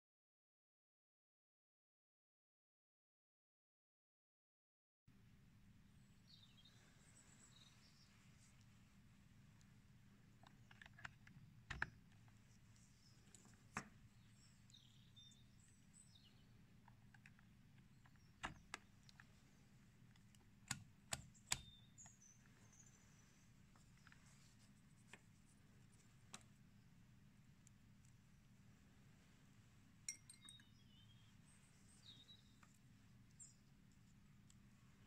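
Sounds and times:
test leads clicking into sockets: 10.4s - 12.4s, 16.8s - 19.4s, 20.0s - 22.1s.

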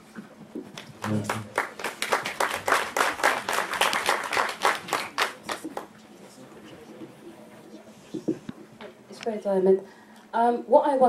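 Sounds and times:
audience applauding: 0.8s - 5.9s.

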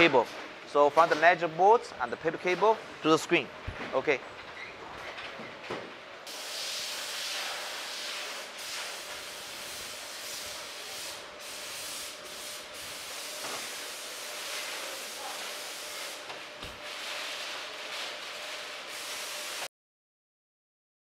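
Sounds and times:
assembly line hiss: 6.3s - 16.3s.

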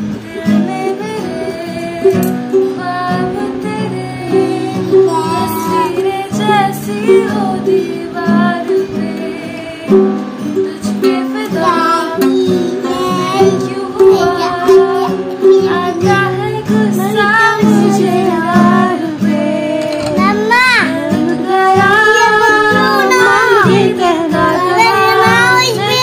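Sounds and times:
acoustic guitar strumming: 0.0s - 26.0s
girl singing: 0.0s - 26.0s.

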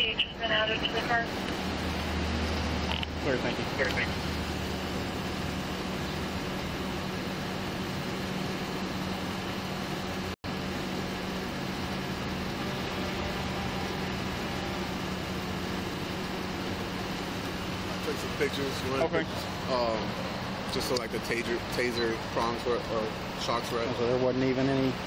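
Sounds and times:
vehicle engine idling: 0.0s - 25.0s.

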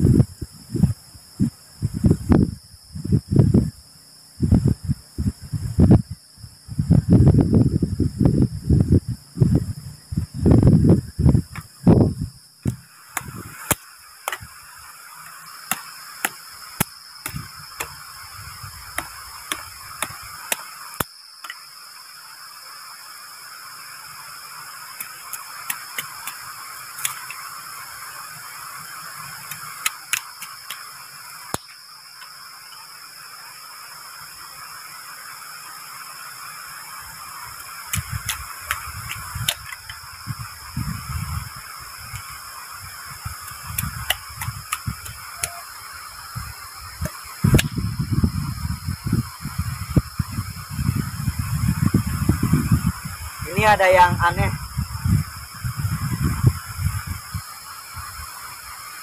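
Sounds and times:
night insects shrilling: 0.0s - 59.0s
dull handling thumps: 11.3s - 14.5s
machete splitting bamboo: 12.6s - 14.6s, 15.2s - 18.0s, 18.9s - 21.6s, 25.0s - 27.4s, 29.4s - 30.9s, 37.6s - 40.0s, 43.4s - 45.6s, 47.0s - 47.8s.

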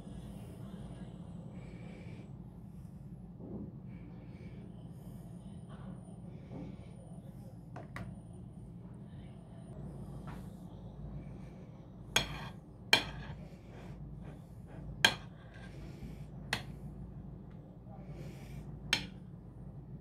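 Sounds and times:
soft scraping of frosting: 12.2s - 16.8s.

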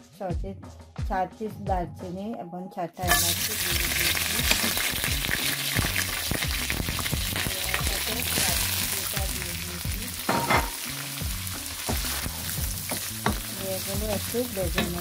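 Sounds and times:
spices sizzling in hot oil: 3.0s - 15.0s.

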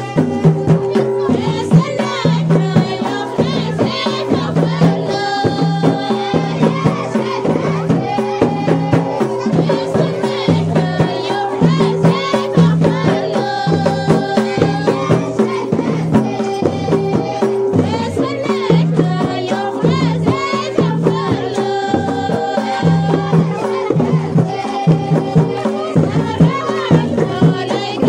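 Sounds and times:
frame drums beating: 0.0s - 28.0s
voices singing together: 0.0s - 28.0s.

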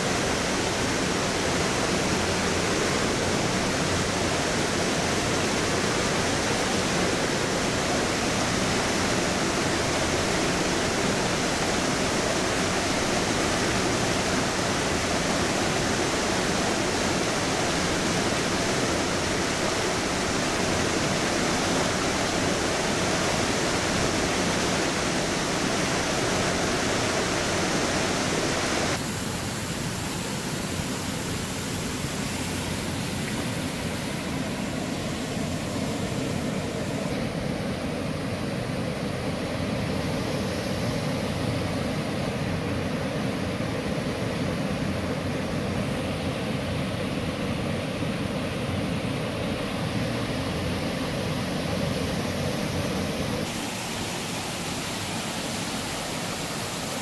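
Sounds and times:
creek rushing over rocks: 0.0s - 37.5s, 49.8s - 57.0s.

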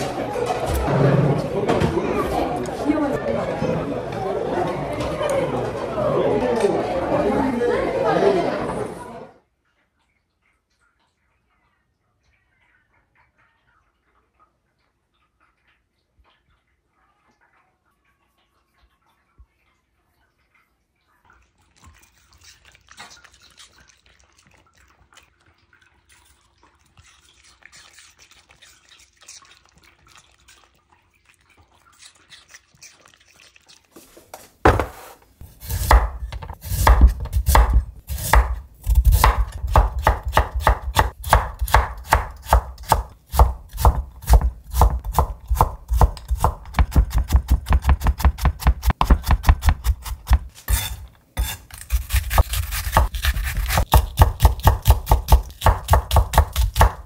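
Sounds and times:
knife chopping carrot on wood: 34.7s - 57.0s.

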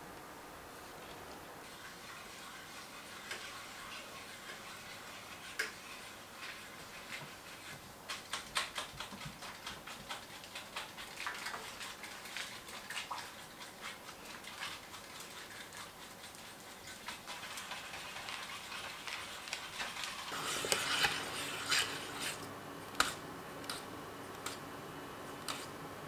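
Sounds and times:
low steady hum: 0.0s - 1.8s, 20.3s - 26.0s
whisk stirring in metal saucepan: 1.6s - 24.6s, 25.4s - 25.7s.

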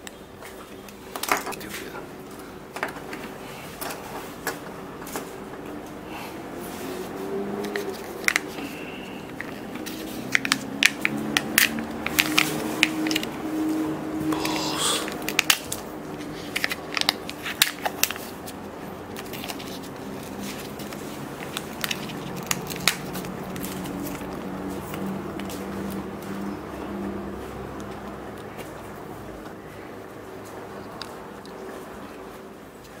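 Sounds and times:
plastic and foil crackling: 14.3s - 26.0s
foil peeling and rustling: 15.2s - 25.1s.

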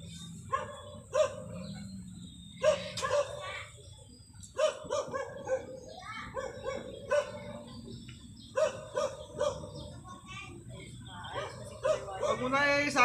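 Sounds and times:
dog barking: 0.5s - 1.9s, 2.6s - 3.5s, 4.6s - 7.7s, 8.5s - 9.9s, 11.3s - 12.6s.

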